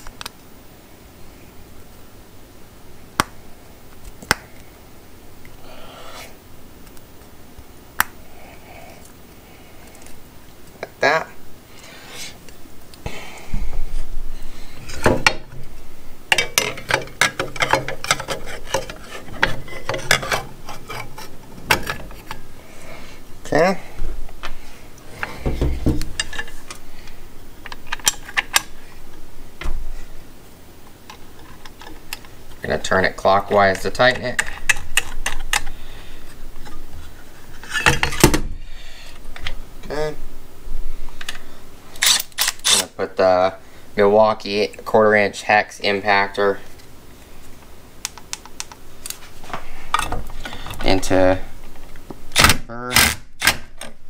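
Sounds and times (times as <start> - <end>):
low bumps against table: 25.4 - 26.1.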